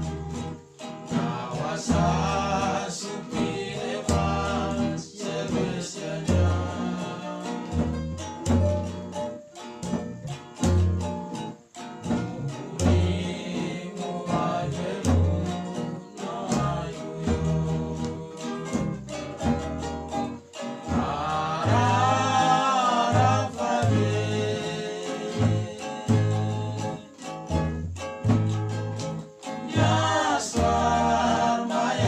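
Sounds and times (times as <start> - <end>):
guitars and ukuleles strumming: 0.0 - 32.0
plucked box bass: 0.0 - 32.0
men singing together: 1.0 - 8.0, 12.4 - 19.6, 20.6 - 27.3, 29.5 - 32.0.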